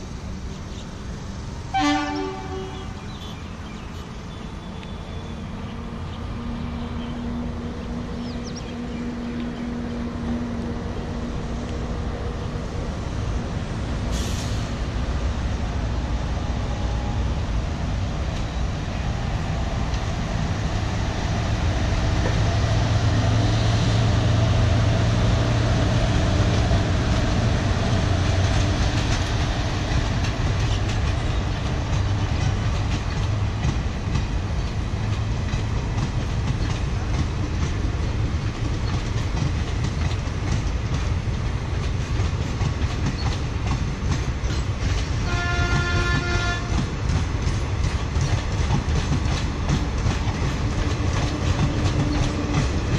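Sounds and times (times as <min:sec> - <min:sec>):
electric locomotive humming: 0:00.0 - 0:52.9
train horn: 0:01.7 - 0:03.0, 0:45.2 - 0:46.9
train wheels clickety-clack: 0:19.8 - 0:52.9.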